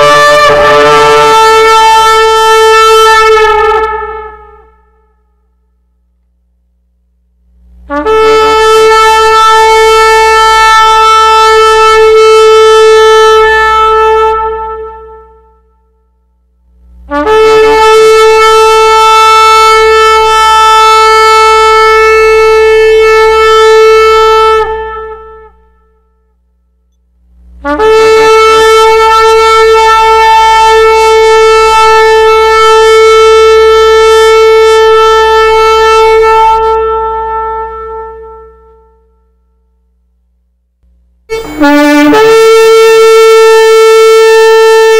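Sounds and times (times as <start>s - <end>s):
shofar blasts: 0.0s - 5.7s, 7.9s - 16.3s, 17.0s - 26.8s, 27.6s - 39.8s, 41.3s - 44.9s.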